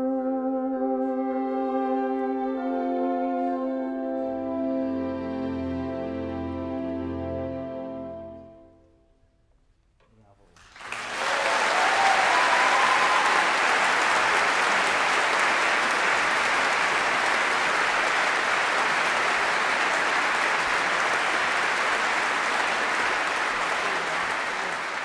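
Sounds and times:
audience applauding: 10.6s - 25.0s.

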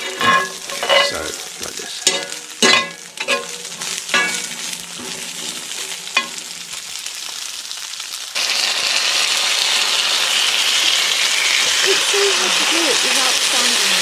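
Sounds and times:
food sizzling in a frying pan: 0.0s - 14.0s
beans poured into hot pan: 6.8s - 14.0s.

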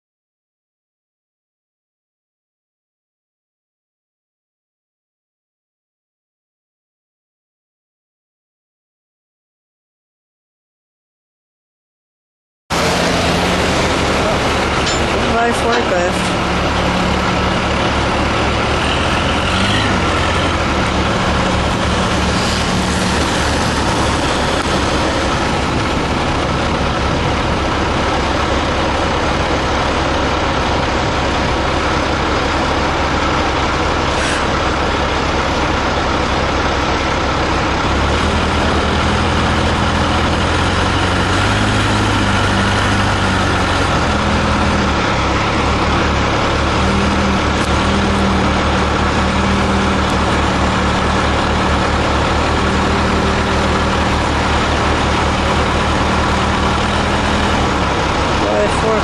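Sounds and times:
forklift engine running: 12.7s - 59.0s.

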